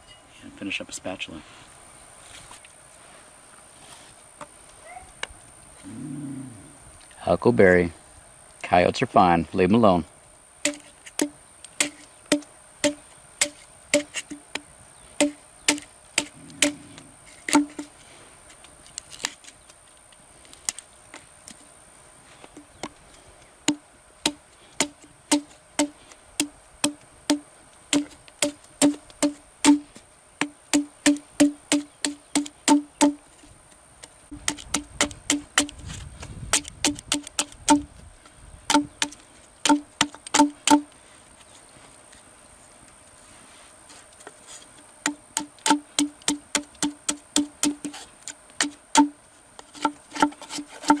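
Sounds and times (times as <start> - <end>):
knife chopping wood: 10.6 - 14.6, 15.2 - 16.8, 17.5 - 17.9, 23.7 - 33.2, 34.3 - 37.9, 38.7 - 40.9, 45.1 - 48.0, 48.6 - 51.0.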